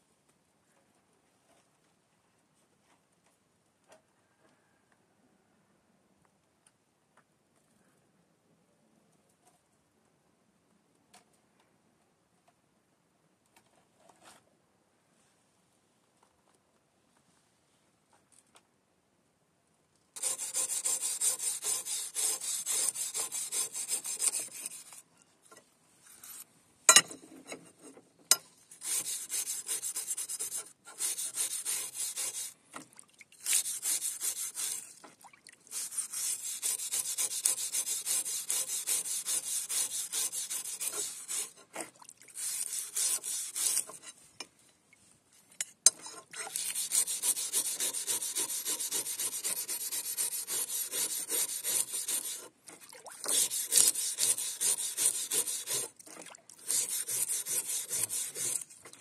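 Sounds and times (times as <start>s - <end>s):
wire brush scrubbing metal: 20.2s - 25.0s, 28.7s - 32.6s, 33.4s - 35.0s, 35.7s - 44.2s, 45.9s - 58.9s.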